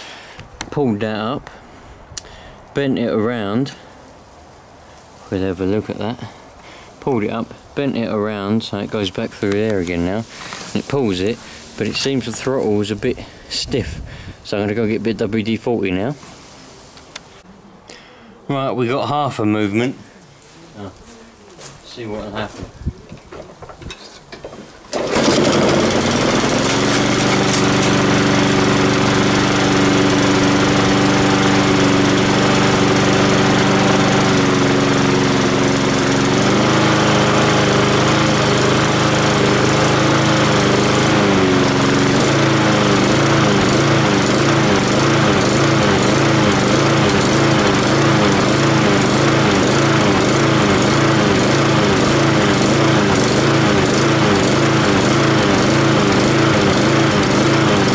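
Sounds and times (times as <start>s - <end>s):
lawn mower engine running: 9.5s - 13.4s, 24.4s - 57.9s.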